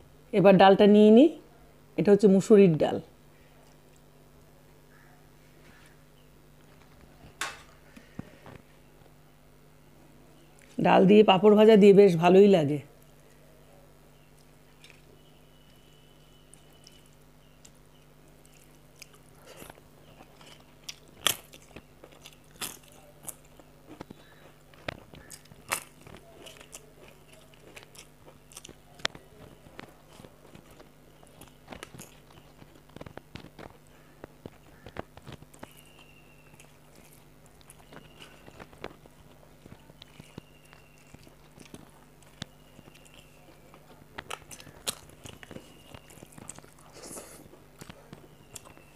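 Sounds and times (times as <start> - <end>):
close-up chewing with crunches: 14.2 - 48.9.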